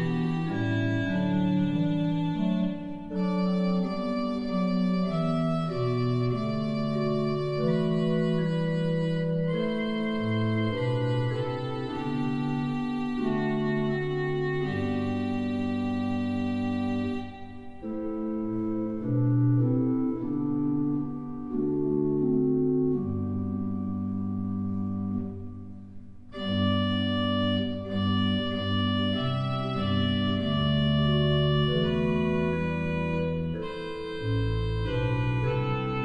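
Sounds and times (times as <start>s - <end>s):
church organ playing chords: 0.0s - 36.0s.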